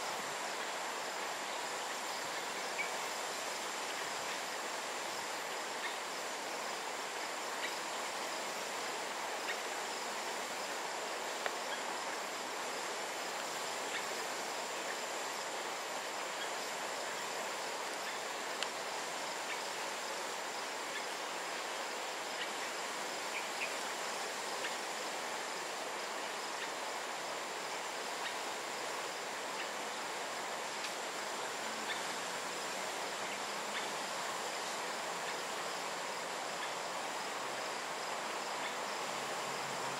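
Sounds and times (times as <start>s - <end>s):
insect drone: 0.0s - 39.9s
faint ticks: 11.4s - 11.8s, 18.0s - 18.8s, 30.8s - 31.0s.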